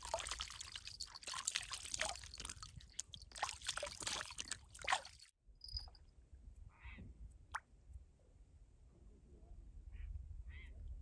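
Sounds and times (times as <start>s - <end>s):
hands splashing in water: 0.0s - 5.3s.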